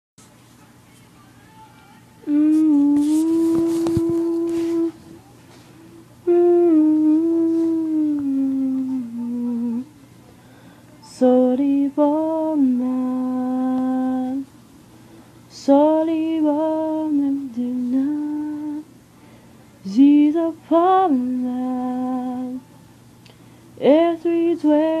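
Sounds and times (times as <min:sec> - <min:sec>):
person humming slow tune: 0:02.2 - 0:05.1, 0:05.9 - 0:09.9.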